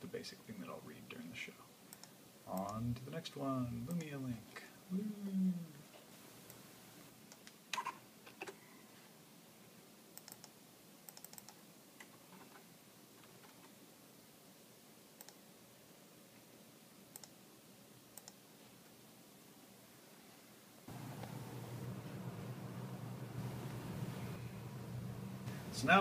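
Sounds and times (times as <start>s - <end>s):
computer mouse and keyboard clicks: 10.2s - 12.6s, 13.2s - 13.8s.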